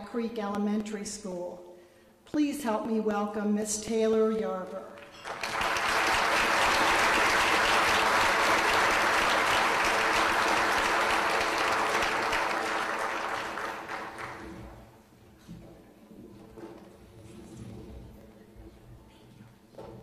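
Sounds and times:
audience applauding: 0:05.0 - 0:14.8.

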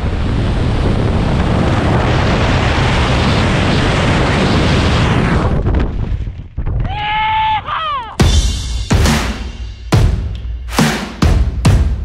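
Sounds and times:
wind noise on microphone: 0:00.0 - 0:07.4.

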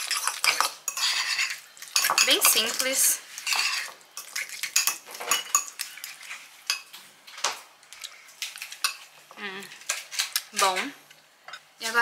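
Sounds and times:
spoon clinking and scraping dish: 0:00.0 - 0:06.9.

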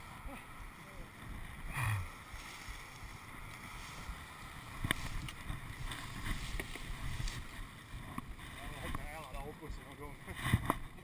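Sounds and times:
wind on microphone: 0:00.0 - 0:11.0
camera moving through brush: 0:02.2 - 0:09.4.

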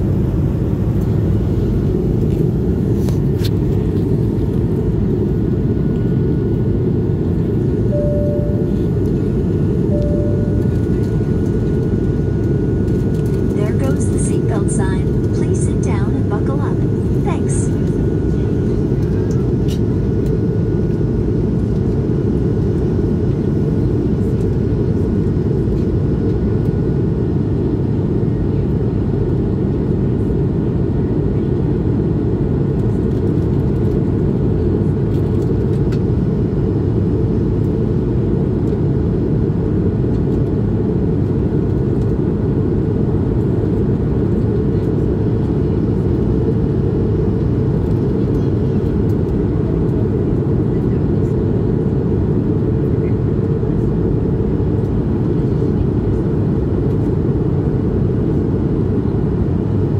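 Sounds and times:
jet engine low rumble: 0:00.0 - 0:59.9
faint thin tone: 0:07.9 - 0:09.2, 0:09.8 - 0:11.2.

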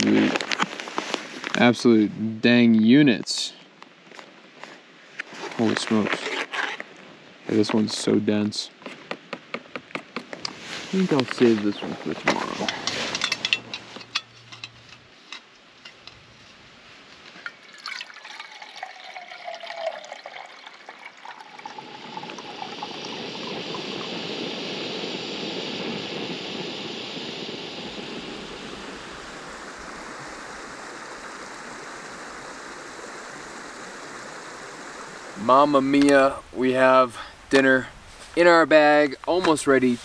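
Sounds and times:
stove burner hissing: 0:21.4 - 0:36.6.

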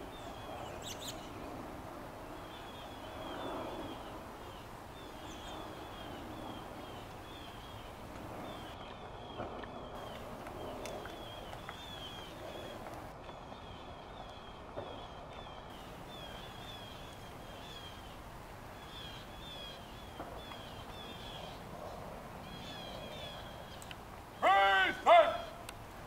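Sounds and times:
small birds chirping: 0:00.0 - 0:01.6, 0:02.3 - 0:24.5
faint footsteps on stone: 0:08.1 - 0:16.0.

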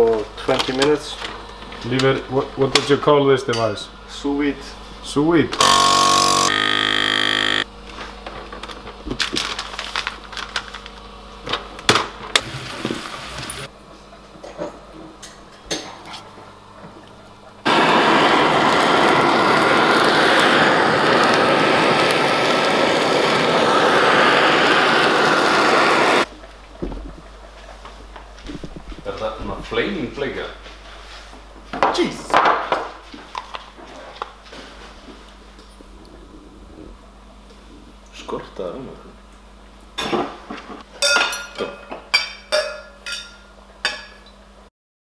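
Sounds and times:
kitchen torch hissing: 0:17.6 - 0:26.3.

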